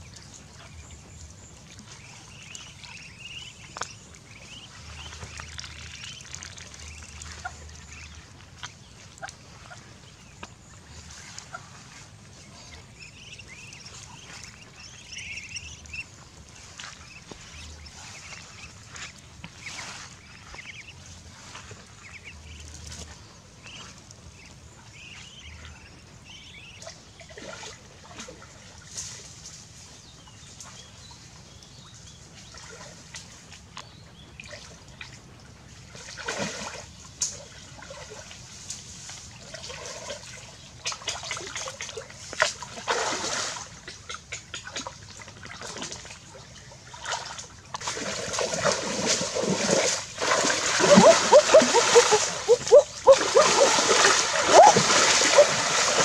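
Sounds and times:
ducklings peeping: 0:00.0 - 0:27.3, 0:50.6 - 0:56.0
water splashing and sloshing: 0:00.0 - 0:56.0.

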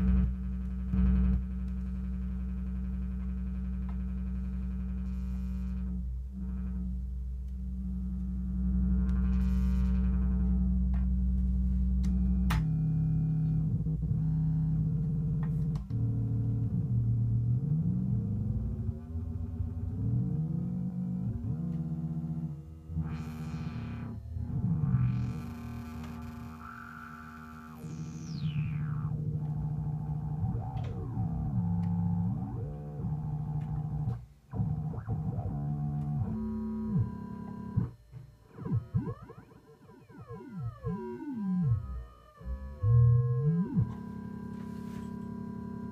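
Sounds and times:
buzzy synthesizer bass drone: 0:00.0 - 0:45.9
synthesizer tone sweeping in pitch: 0:23.0 - 0:45.9.

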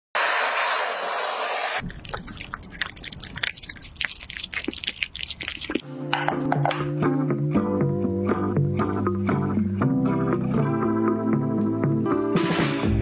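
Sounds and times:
blowtorch flame hissing: 0:00.2 - 0:01.8
cat chewing raw fish: 0:01.8 - 0:05.8.

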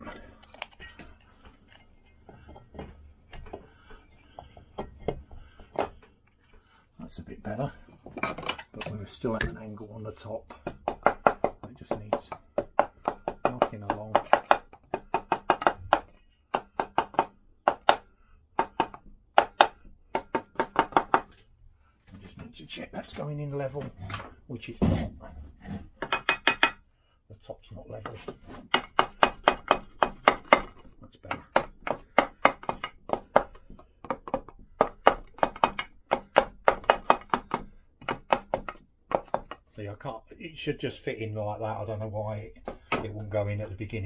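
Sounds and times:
wooden handle tapping metal: 0:10.5 - 0:18.0, 0:26.0 - 0:26.8, 0:28.0 - 0:39.7
hammer tapping on metal: 0:10.6 - 0:18.0, 0:26.0 - 0:26.8.

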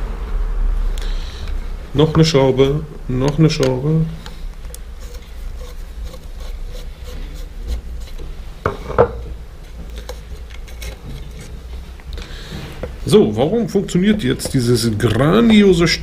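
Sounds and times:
screwdriver scraping and clicking: 0:03.2 - 0:08.3, 0:09.9 - 0:13.0, 0:14.0 - 0:16.0
tool knocking on wooden table: 0:08.7 - 0:09.2.

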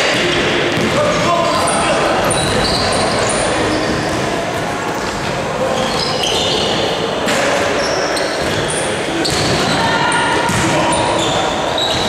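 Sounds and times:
basketball bouncing on floor: 0:00.7 - 0:01.0, 0:10.5 - 0:10.7
sneakers squeaking on court: 0:00.7 - 0:12.0.

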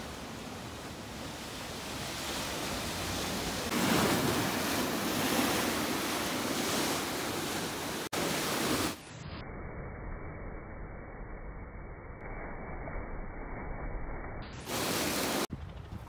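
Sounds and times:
sea surf breaking on shore: 0:00.0 - 0:09.1, 0:14.6 - 0:15.5.

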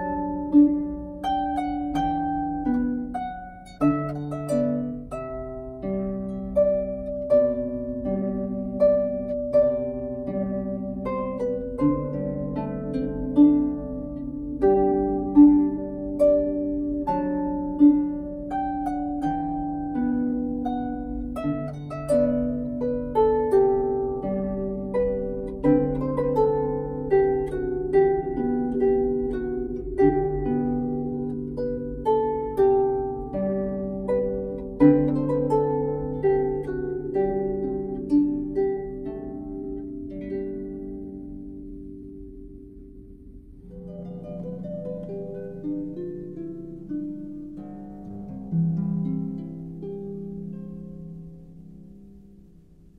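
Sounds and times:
harp melody: 0:00.0 - 0:52.9.

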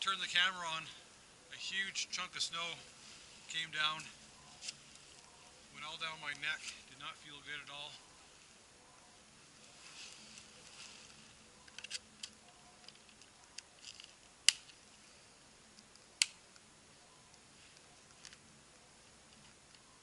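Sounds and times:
soft rustling: 0:02.3 - 0:16.0, 0:17.2 - 0:20.0
sharp snaps: 0:11.6 - 0:14.9, 0:15.6 - 0:19.9.

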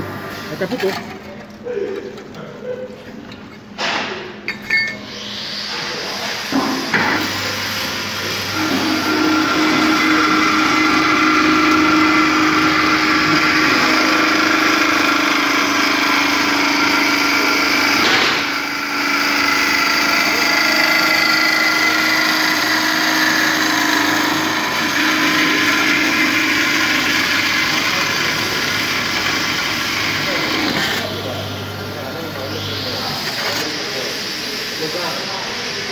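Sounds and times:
band saw cutting metal: 0:04.7 - 0:35.4.

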